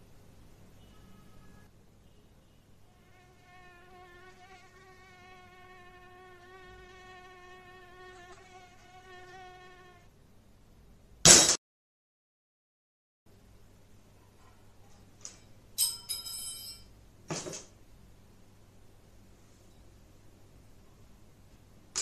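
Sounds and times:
mosquito buzzing: 0:02.9 - 0:10.1.

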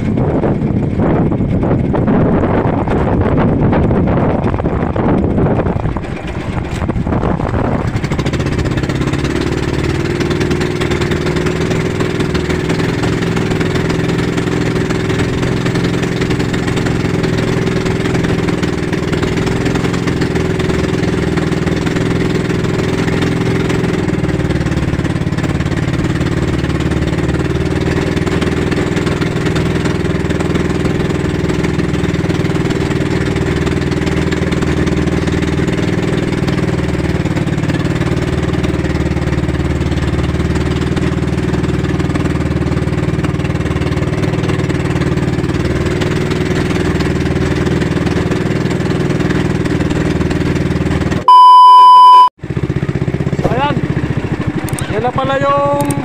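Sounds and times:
wind on microphone: 0:00.0 - 0:09.8
boat engine droning: 0:00.0 - 0:56.0.

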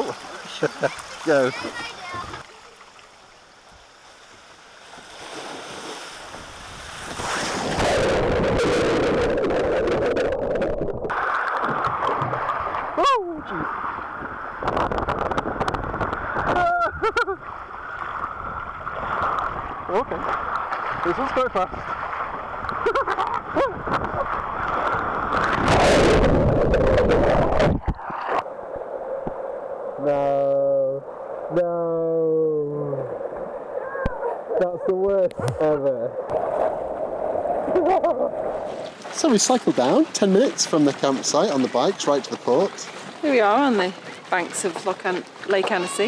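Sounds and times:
water rushing on a slide: 0:00.0 - 0:03.2, 0:04.3 - 0:28.5, 0:35.4 - 0:46.0
splash into pool: 0:04.8 - 0:09.9.

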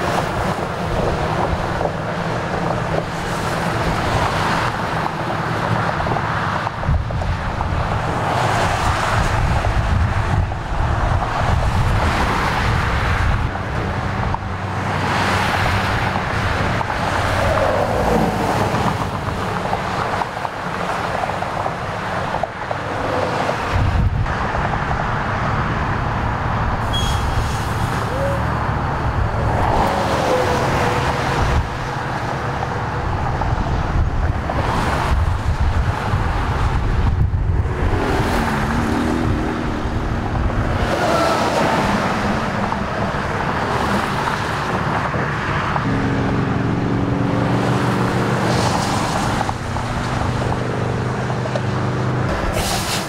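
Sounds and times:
traffic passing close by: 0:00.0 - 0:53.0.

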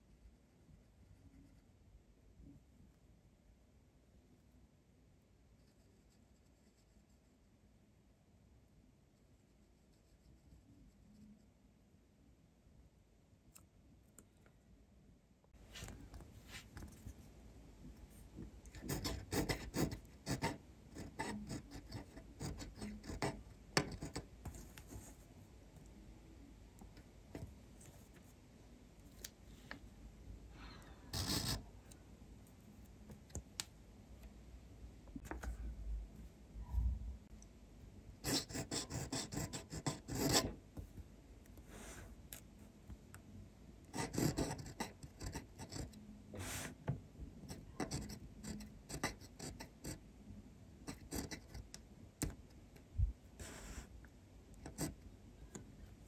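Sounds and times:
pen nib scratching paper: 0:05.6 - 0:07.3, 0:09.5 - 0:11.4, 0:18.7 - 0:25.3, 0:31.1 - 0:31.7, 0:38.2 - 0:40.6, 0:43.9 - 0:46.8, 0:47.4 - 0:50.0, 0:50.8 - 0:52.4, 0:54.5 - 0:55.0.

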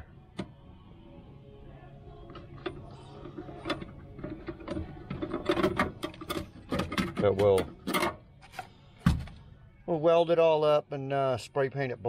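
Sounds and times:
faint low hum: 0:00.0 - 0:12.0
metal hardware clicks and knocks: 0:03.6 - 0:08.6.

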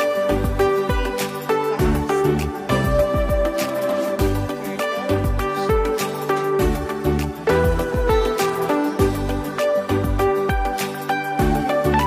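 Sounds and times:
crisp percussion: 0:00.0 - 0:12.0
sliding bass notes: 0:01.8 - 0:03.6, 0:06.6 - 0:08.4, 0:09.0 - 0:10.7, 0:11.4 - 0:12.0.

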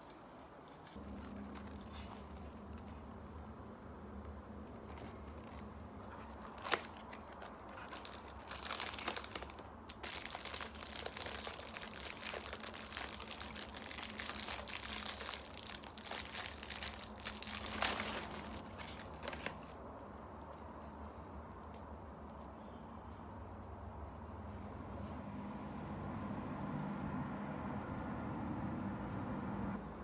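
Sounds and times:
plastic wrapper crinkling: 0:00.9 - 0:02.9, 0:04.8 - 0:19.8
biscuit crunching: 0:04.9 - 0:19.6.

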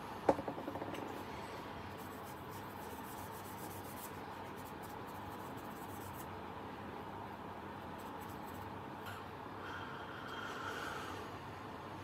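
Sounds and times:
steady background hum: 0:00.0 - 0:12.0
tissue rubbing on plastic: 0:02.0 - 0:06.3.

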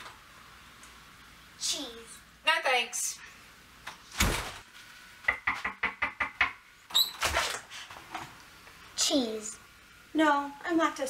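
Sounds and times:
knocking on wooden door: 0:05.3 - 0:06.6.

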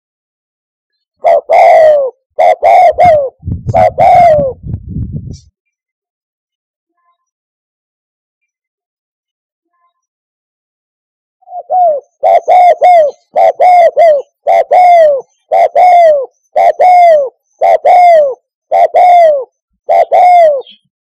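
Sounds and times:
dove cooing: 0:01.2 - 0:04.7, 0:11.4 - 0:20.9.

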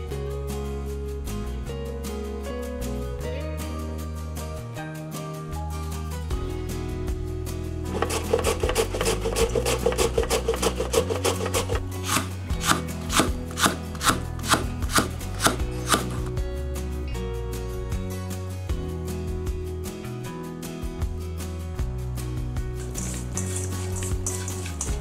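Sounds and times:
soft guitar music: 0:00.0 - 0:25.0
knife cutting on wooden board: 0:07.9 - 0:16.3.

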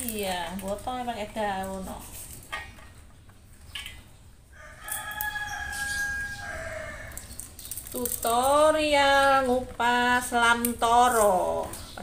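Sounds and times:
rooster crowing: 0:04.5 - 0:07.4.

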